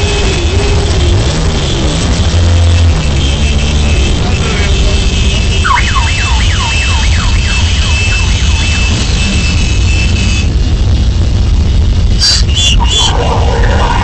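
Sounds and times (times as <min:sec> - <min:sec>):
motorcycle engines rumbling: 0:00.0 - 0:14.0
siren yelping: 0:05.6 - 0:09.7, 0:12.2 - 0:14.0.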